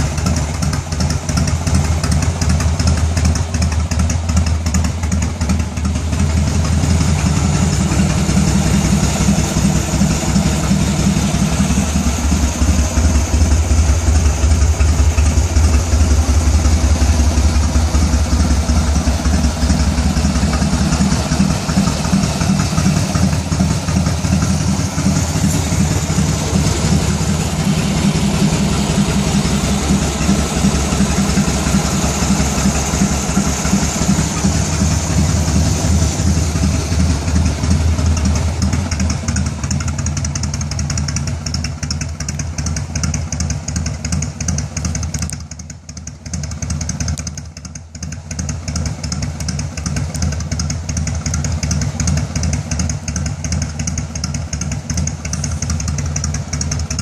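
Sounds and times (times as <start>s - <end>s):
motorcycle engine idling: 0.0s - 57.0s.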